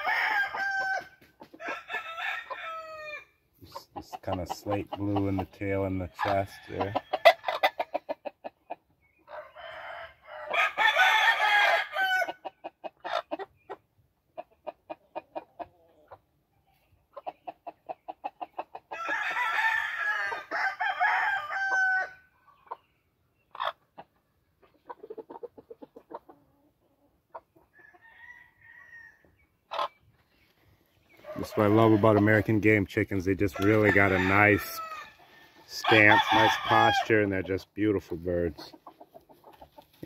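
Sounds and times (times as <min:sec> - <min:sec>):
rooster crowing: 0:00.0 - 0:03.3, 0:09.3 - 0:12.4, 0:18.9 - 0:22.2, 0:27.8 - 0:29.2, 0:33.6 - 0:37.0
rapid clucking: 0:03.6 - 0:08.9, 0:17.1 - 0:19.0, 0:23.5 - 0:26.5, 0:35.6 - 0:40.0.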